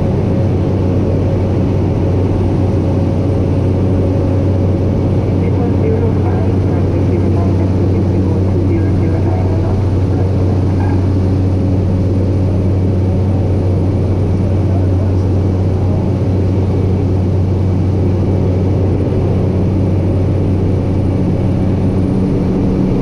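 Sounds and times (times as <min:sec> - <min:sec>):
turboprop engine droning in flight: 0:00.0 - 0:23.0.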